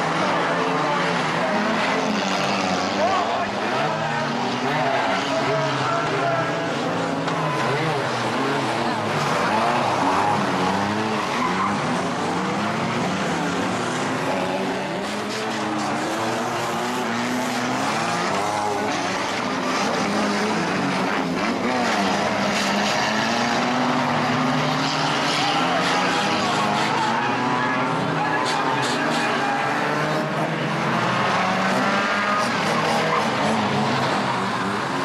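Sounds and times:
racing car engines revving: 0.0s - 35.0s
tyres skidding: 0.0s - 35.0s.

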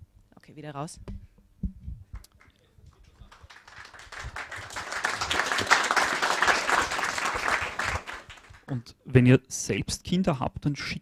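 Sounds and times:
audience applauding: 2.2s - 8.7s.

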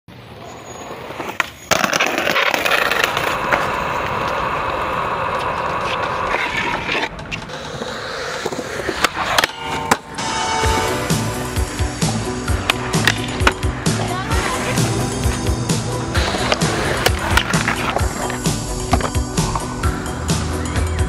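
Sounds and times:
skateboard wheels rolling on concrete: 0.1s - 21.0s
skateboard clacking on ground: 0.8s - 10.8s, 12.5s - 15.4s, 16.1s - 19.7s.

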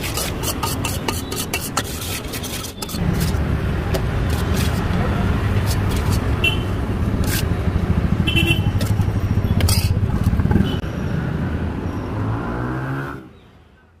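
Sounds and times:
spoon scraping steel pot: 0.0s - 3.4s, 4.2s - 6.4s, 9.6s - 10.4s.

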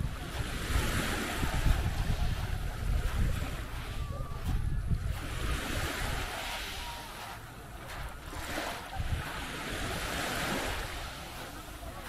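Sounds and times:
waves washing onto beach: 0.0s - 12.0s
wind gusting on microphone: 0.0s - 12.0s.

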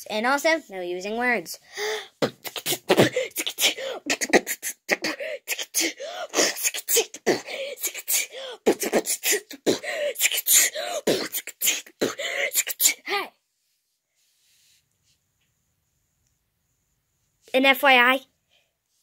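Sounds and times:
person beatboxing: 2.2s - 13.0s.

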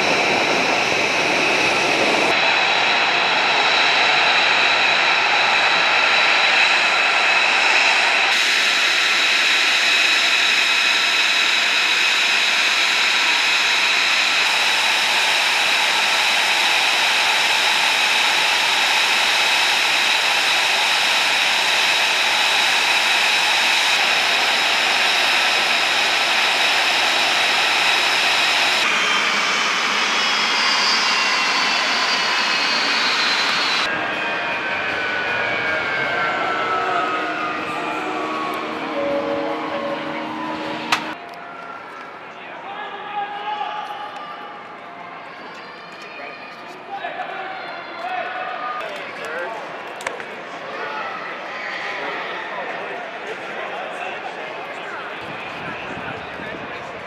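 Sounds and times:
jet engine spooling down: 0.0s - 41.8s
jet engine whine: 0.0s - 42.9s, 43.8s - 57.0s.

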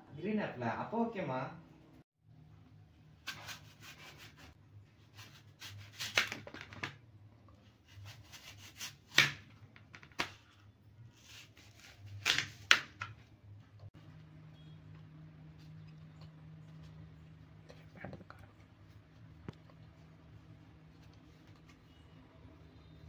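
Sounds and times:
knife slicing apple: 3.2s - 6.8s, 7.6s - 9.5s, 11.2s - 13.2s.

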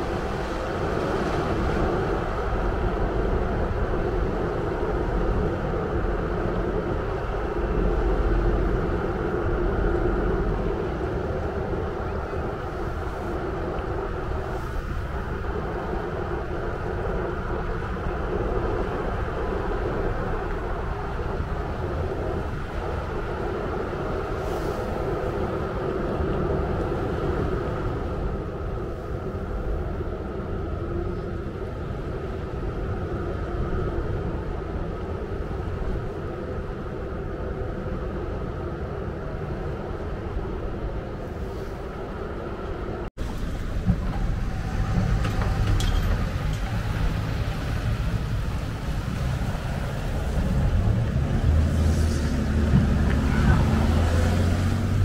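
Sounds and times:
ferry engines droning: 0.0s - 55.0s
vehicles rumbling on ramp: 42.2s - 55.0s.

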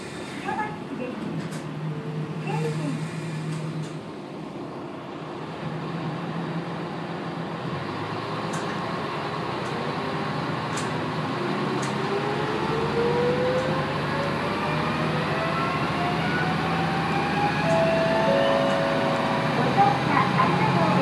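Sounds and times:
railcar engine drone: 0.0s - 21.0s
rising whine: 12.0s - 21.0s.

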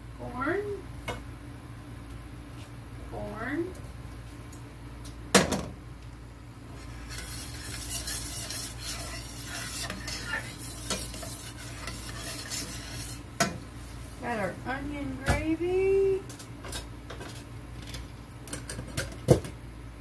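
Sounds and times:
utensil scraping a skillet: 6.7s - 14.4s.

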